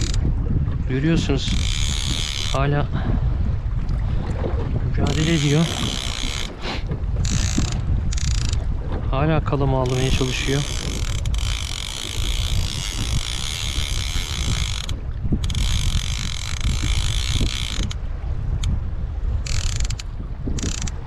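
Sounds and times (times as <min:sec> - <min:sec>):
fishing reel drag clicking: 0:00.0 - 0:00.3, 0:01.4 - 0:02.6, 0:05.0 - 0:08.7, 0:09.8 - 0:18.0, 0:18.6 - 0:18.8, 0:19.4 - 0:21.0
wind rumble on microphone: 0:00.0 - 0:21.0.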